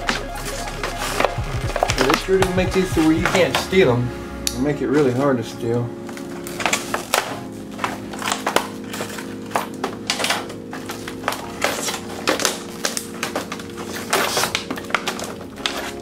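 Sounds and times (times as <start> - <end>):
plastic packaging crackling and tearing: 4.9 - 16.0.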